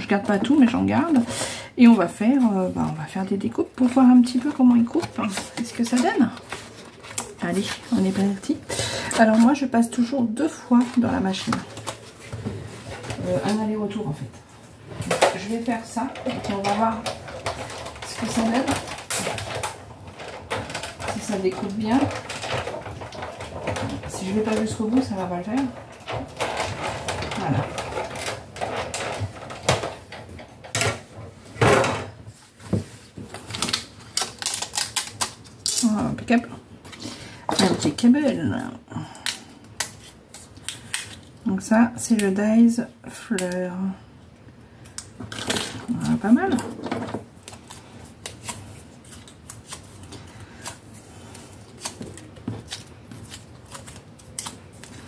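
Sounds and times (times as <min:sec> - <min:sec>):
paper rustling: 0:03.8 - 0:09.6, 0:45.4 - 0:55.0
knocks and sliding clatters: 0:10.7 - 0:33.8, 0:45.2 - 0:47.7.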